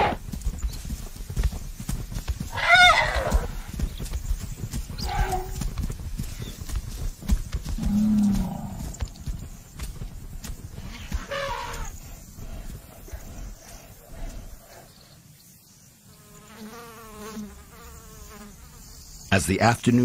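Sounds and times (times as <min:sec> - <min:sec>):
heavy footfalls in dry dust: 0:00.0 - 0:12.9.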